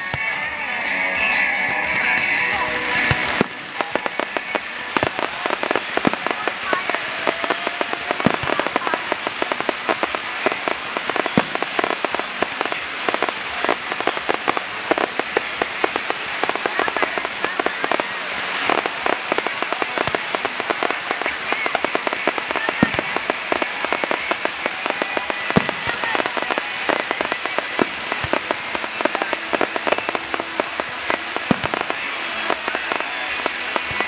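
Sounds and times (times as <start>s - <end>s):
fireworks bangs: 0.0s - 34.0s
fireworks crackling: 0.0s - 34.0s.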